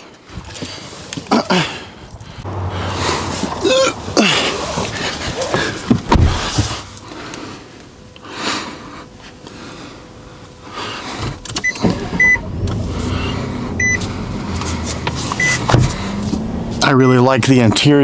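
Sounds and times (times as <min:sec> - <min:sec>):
truck engine starting and running: 0:00.0 - 0:07.4, 0:10.7 - 0:18.0
dashboard warning chime: 0:11.6 - 0:12.5, 0:13.8 - 0:14.0, 0:15.4 - 0:15.7.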